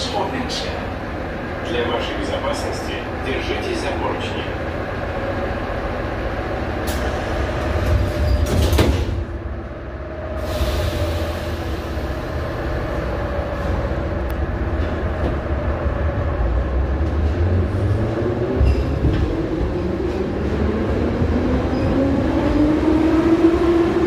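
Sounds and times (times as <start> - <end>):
train car low running hum: 0.0 - 24.0
sliding doors banging shut: 7.8 - 9.2.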